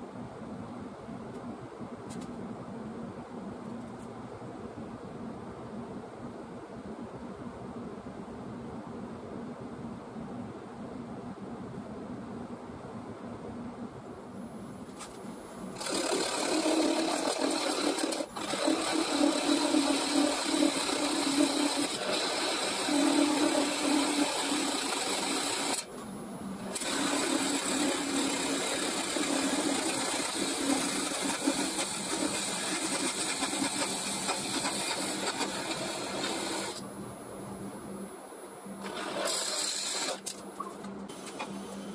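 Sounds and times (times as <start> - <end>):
turning tool cutting wood: 15.8 - 25.9, 26.7 - 36.8, 38.8 - 40.4
wood lathe humming: 15.8 - 25.9, 26.7 - 36.8, 38.8 - 40.2.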